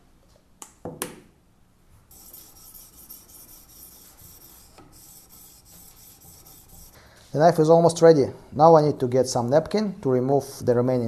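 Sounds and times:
sharpening stone scraping knife edge: 2.1s - 7.0s.

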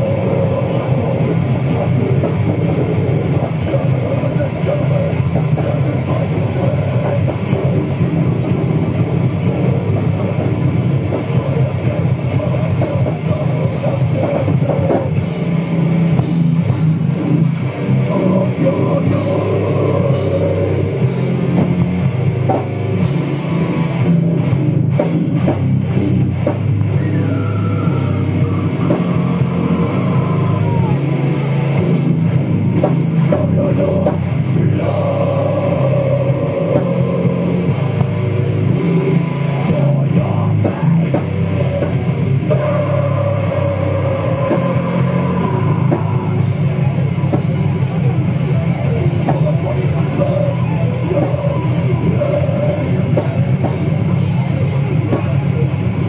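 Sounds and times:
distorted electric guitars: 0.0s - 56.0s
drum kit: 0.0s - 56.0s.

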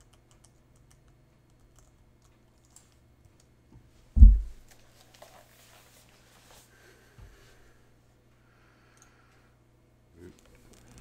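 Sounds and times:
dull low thump: 4.2s - 4.6s.

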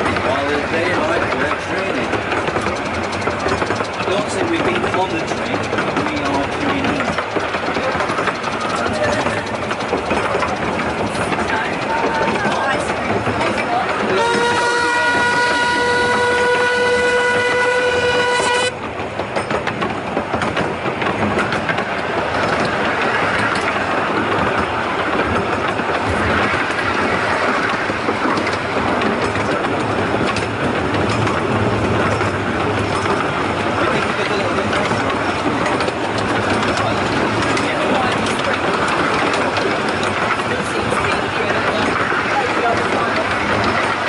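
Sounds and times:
train running: 0.0s - 44.0s
wheels clicking over rail joints: 0.0s - 44.0s
steam locomotive whistle: 14.0s - 18.7s.

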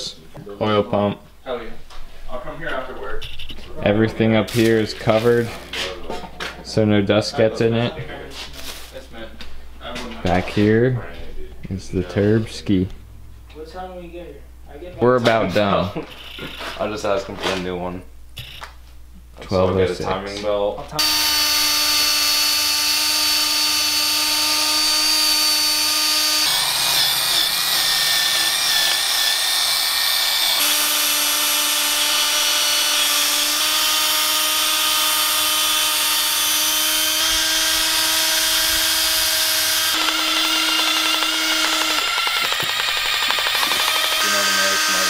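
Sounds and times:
drill motor whining: 21.0s - 45.0s.

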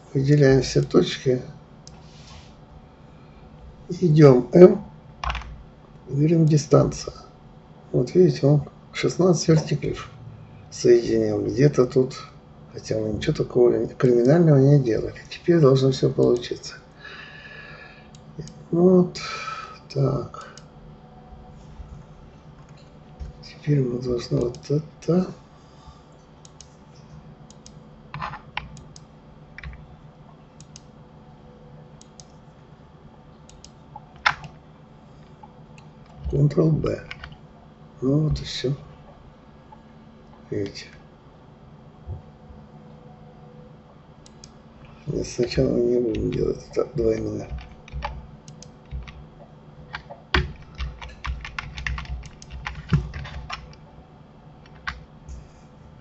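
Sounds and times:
faint steady hum: 0.0s - 56.0s
keyboard and mouse clicking: 26.4s - 26.7s, 27.5s - 29.8s, 30.6s - 30.9s, 32.0s - 32.4s, 33.5s - 34.6s, 37.0s - 37.4s, 47.1s - 49.2s, 49.9s - 53.8s, 54.6s - 55.0s.

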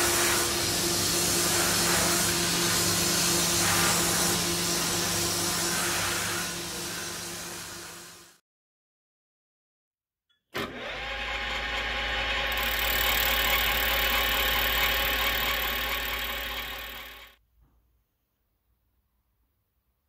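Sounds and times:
metal lathe cutting: 10.6s - 17.4s.

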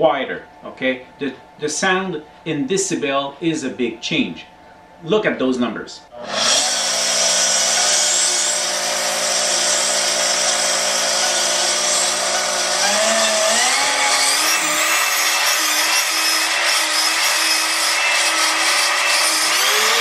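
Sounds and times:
router motor whine: 6.2s - 20.0s.

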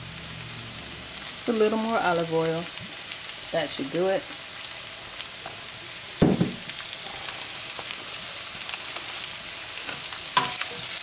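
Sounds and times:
noodles sizzling in a wok: 0.0s - 11.0s
loud knock: 6.2s - 6.6s.

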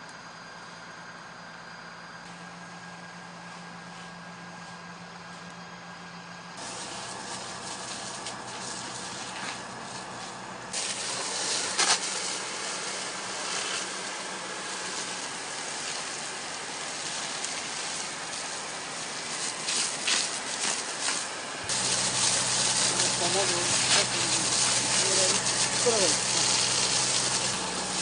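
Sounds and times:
low engine hum: 0.0s - 28.0s
fire hose spraying water: 6.6s - 28.0s.

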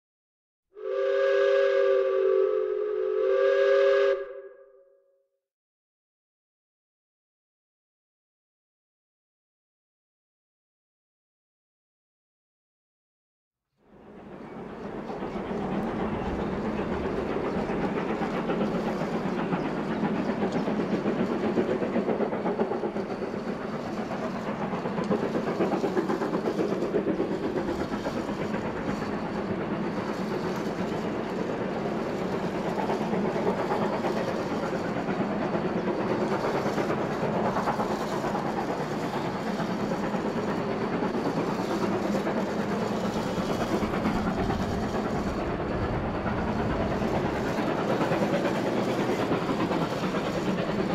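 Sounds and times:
steam train running: 0.8s - 4.5s, 13.8s - 50.9s
wheels clattering on rails: 14.0s - 50.9s.

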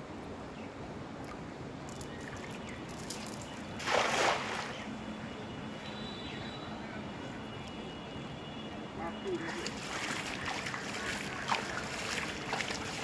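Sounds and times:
net splashing into water: 3.1s - 4.8s, 9.5s - 13.0s.

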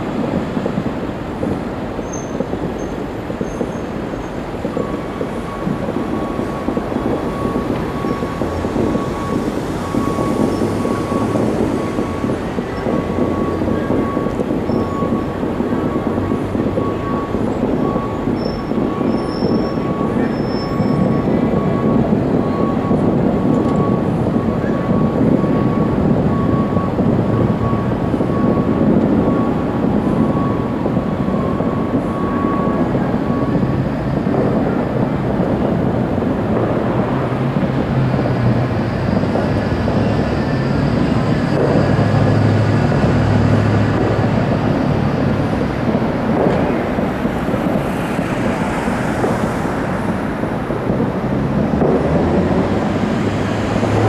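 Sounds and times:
distant fireworks rumble: 0.0s - 54.0s
traffic noise: 0.0s - 54.0s.

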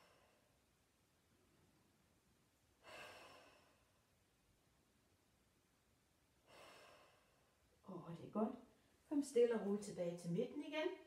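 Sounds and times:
woman breathing deeply: 0.0s - 0.6s, 2.8s - 4.1s, 6.4s - 7.6s.

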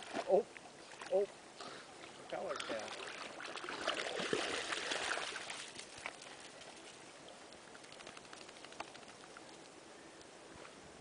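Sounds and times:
dog splashing through water: 2.6s - 6.8s
faint ticks: 5.8s - 10.4s.

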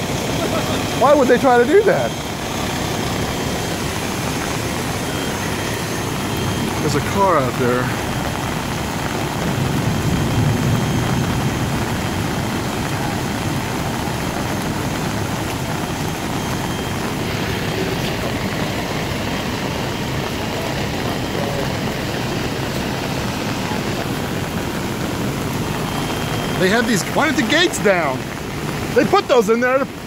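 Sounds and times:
heavy rain and rushing water: 0.0s - 30.0s.

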